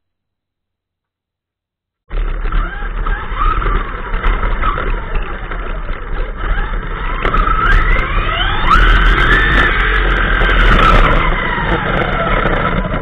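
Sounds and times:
electric motor whine: 2.1s - 13.0s
tyre and drivetrain noise: 2.1s - 13.0s.

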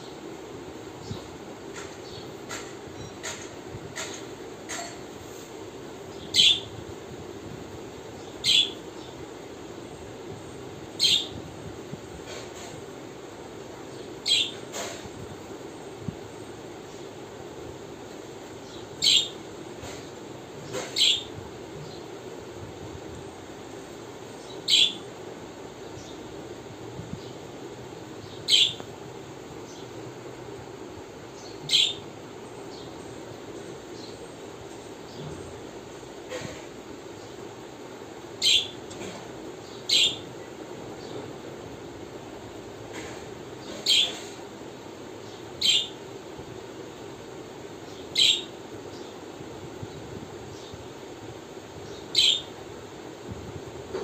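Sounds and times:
low background hum: 0.0s - 54.0s
budgerigar chirps: 39.9s - 40.2s, 48.2s - 48.5s, 52.2s - 52.5s.

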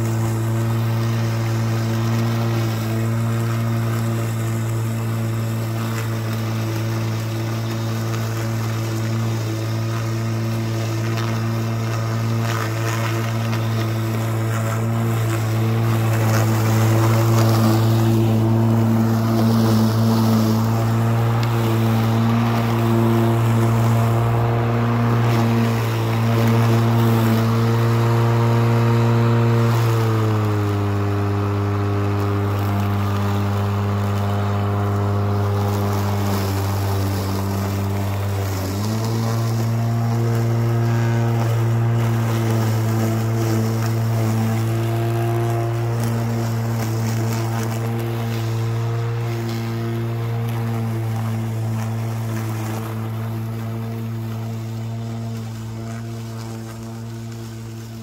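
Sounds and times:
electric lawn mower humming: 0.0s - 58.0s.

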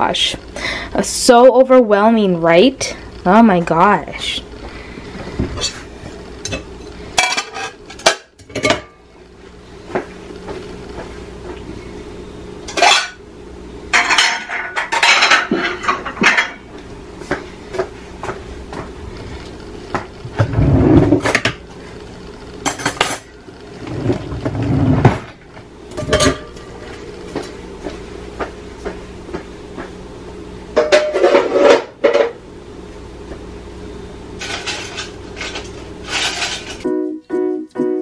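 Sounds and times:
dishes and cutlery clattering: 26.0s - 26.6s.

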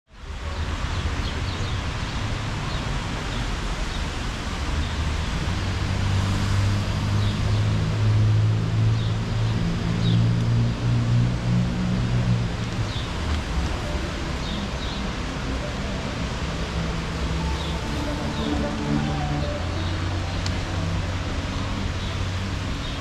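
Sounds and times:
wet street hiss: 0.2s - 23.0s
low vehicle engine hum: 5.4s - 23.0s.

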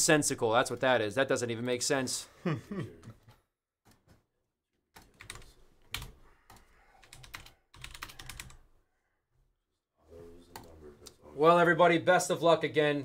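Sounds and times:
keyboard typing: 5.0s - 8.7s.

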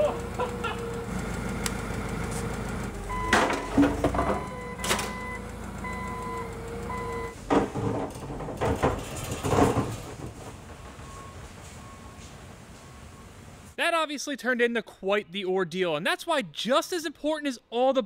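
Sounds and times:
forklift alarm beeping: 0.0s - 7.4s, 10.8s - 13.8s
forklift engine rumbling: 0.0s - 13.8s
metal clanks and knocks: 3.1s - 5.4s, 7.3s - 11.8s.

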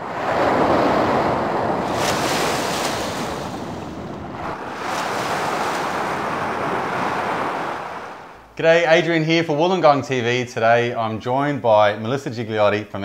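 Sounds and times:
waves washing over sand: 0.0s - 8.5s.

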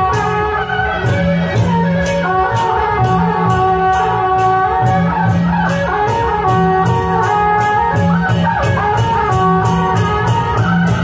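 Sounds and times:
steady drum beat: 0.0s - 11.0s
wind instrument melody: 0.0s - 11.0s.

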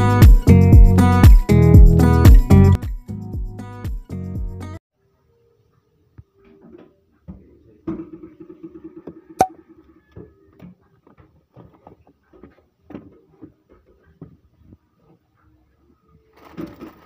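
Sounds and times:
packaging rustle: 16.3s - 17.0s.

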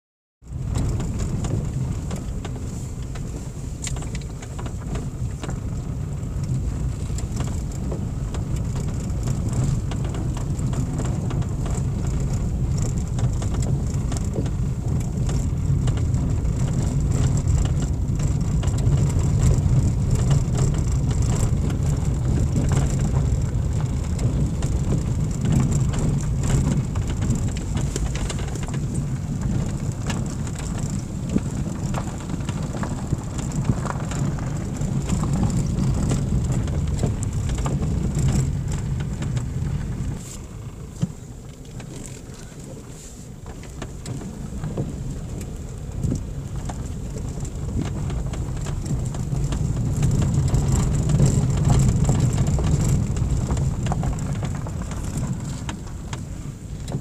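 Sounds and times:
car engine and tyres rumbling: 0.4s - 57.0s
gravel ticks: 0.4s - 57.0s.

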